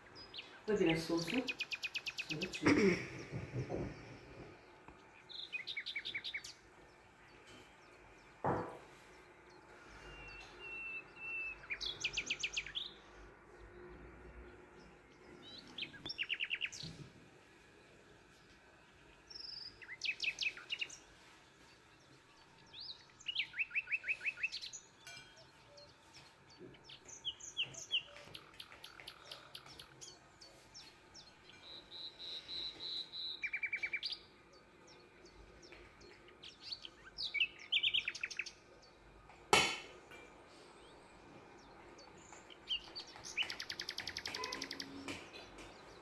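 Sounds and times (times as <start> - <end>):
knock: 3.3 - 4.1, 8.4 - 8.9
small bird chirping: 15.3 - 17.0, 19.3 - 21.1, 22.1 - 39.0, 40.8 - 46.0.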